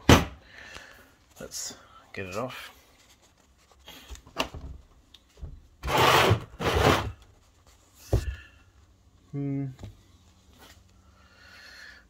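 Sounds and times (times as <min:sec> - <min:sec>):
rough rubbing scrapes: 0:05.8 - 0:07.8.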